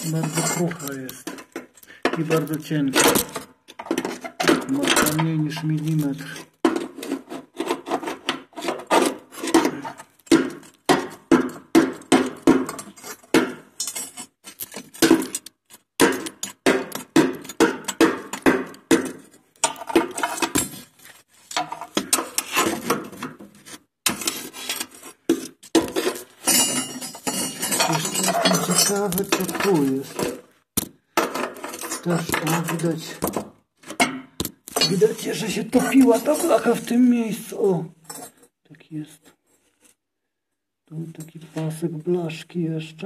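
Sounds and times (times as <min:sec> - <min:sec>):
metal rod scraping through ash: 0:00.0 - 0:01.2, 0:12.7 - 0:16.6, 0:19.2 - 0:23.0, 0:23.6 - 0:30.4.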